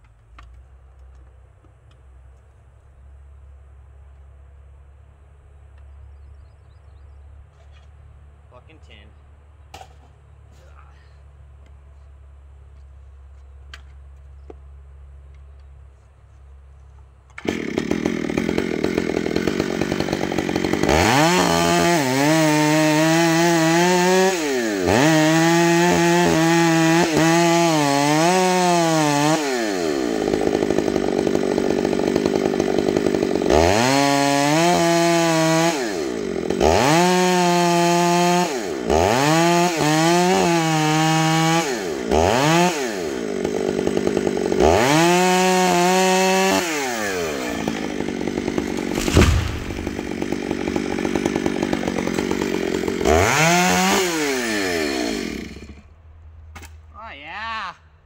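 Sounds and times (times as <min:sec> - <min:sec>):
chainsaw cutting wood: 0:16.5 - 0:56.8.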